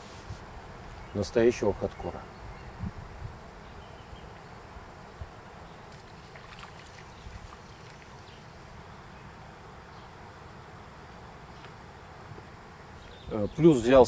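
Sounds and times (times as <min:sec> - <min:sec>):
wind rumble on microphone: 0:01.8 - 0:03.5.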